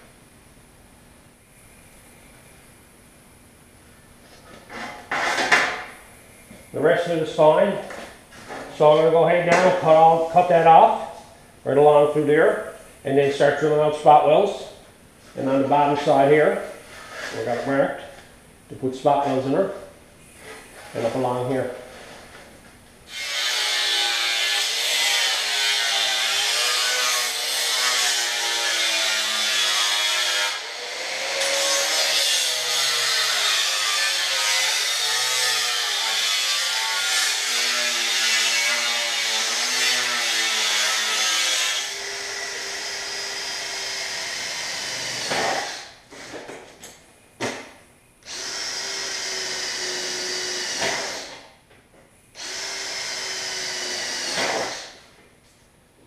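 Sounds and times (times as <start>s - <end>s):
angle grinder cutting steel: 23.1s - 46.0s, 52.4s - 55.0s
electric drill running: 48.2s - 51.4s, 52.4s - 55.0s.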